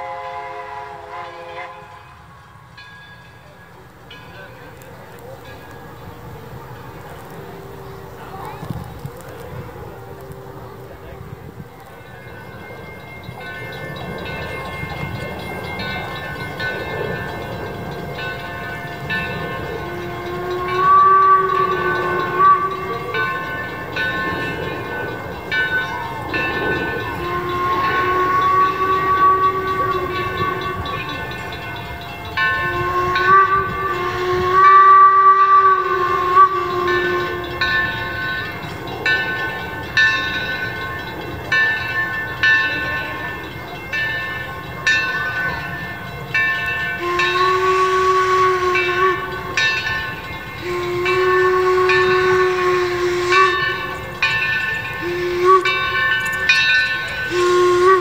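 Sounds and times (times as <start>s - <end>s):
steam whistle blasts: 0.0s - 2.8s, 18.1s - 39.0s, 46.3s - 58.0s
rhythmic beat of running train: 0.0s - 58.0s.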